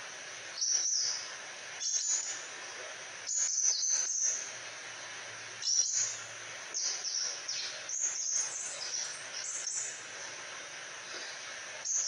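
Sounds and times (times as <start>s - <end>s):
bird twittering song: 0.5s - 2.5s, 3.2s - 4.5s, 5.6s - 10.0s, 11.0s - 12.0s.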